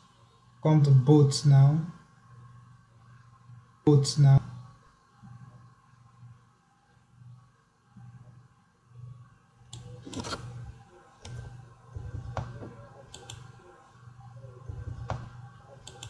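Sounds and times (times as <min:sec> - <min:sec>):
faint low hum: 0:00.0 - 0:16.0
computer mouse clicking: 0:09.7 - 0:10.5, 0:11.2 - 0:13.6, 0:14.7 - 0:16.0.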